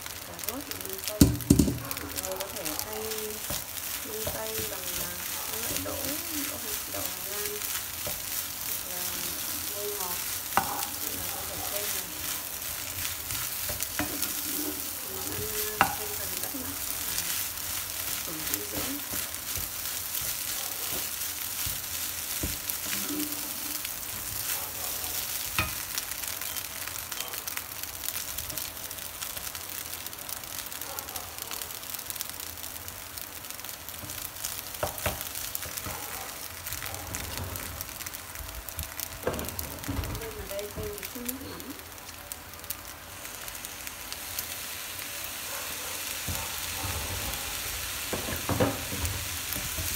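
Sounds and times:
rice sizzling in a frying pan: 0.0s - 49.9s.

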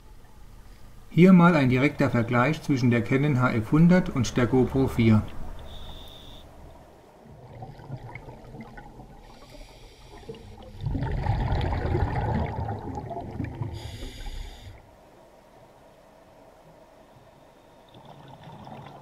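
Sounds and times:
diver breathing through regulator: 5.7s - 6.5s, 9.2s - 10.8s, 13.7s - 14.9s
short hiss: 5.7s - 6.5s, 13.8s - 14.8s
bubbling rush of exhaled air: 7.3s - 14.8s, 17.9s - 19.0s.

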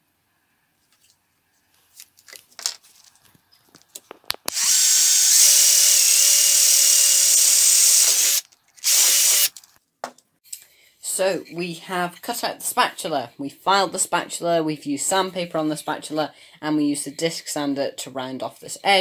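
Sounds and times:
cordless drill boring wood: 4.5s - 9.6s.

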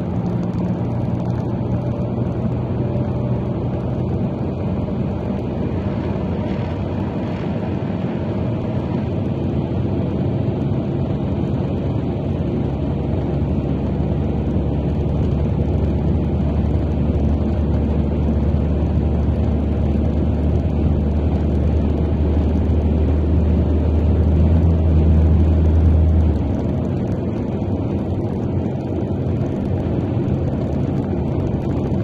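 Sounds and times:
car engine and tyre rumble: 0.0s - 32.0s.

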